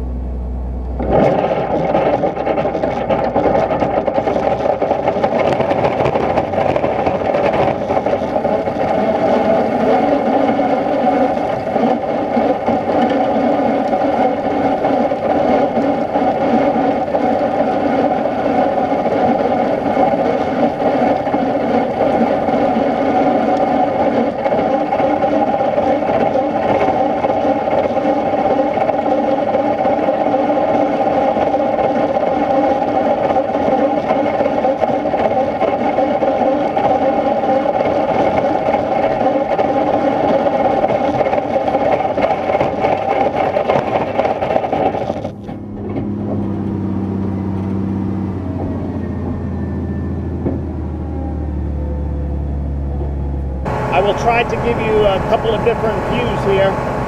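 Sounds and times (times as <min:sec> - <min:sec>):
spreader mechanical whir and rattle: 0:00.0 - 0:57.0.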